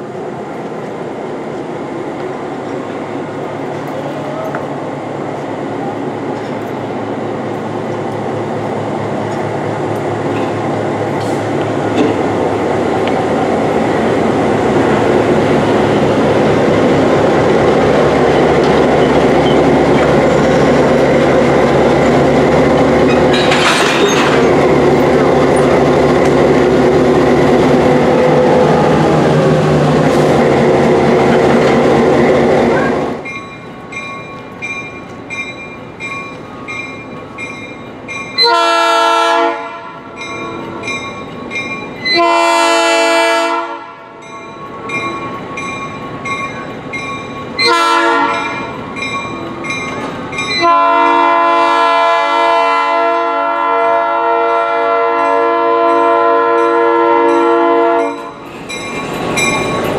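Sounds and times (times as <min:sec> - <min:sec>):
diesel locomotive running: 0:00.0 - 0:59.9
locomotive bell ringing: 0:33.2 - 0:38.6, 0:40.1 - 0:42.2, 0:44.2 - 0:50.8, 0:55.2 - 0:59.9
locomotive air horn blasts: 0:38.4 - 0:40.1, 0:42.1 - 0:44.2, 0:47.6 - 0:48.6, 0:50.6 - 0:58.4.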